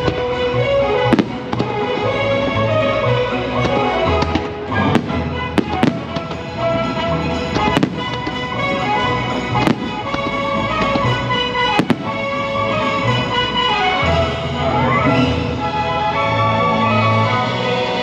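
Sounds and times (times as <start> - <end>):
music over loudspeakers: 0.0 - 18.0
fireworks bangs: 1.0 - 2.1, 3.6 - 13.2.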